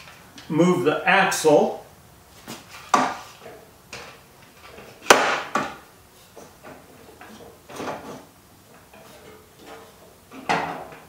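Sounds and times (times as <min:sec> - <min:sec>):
metal knocks and clanks: 0:08.8 - 0:11.0.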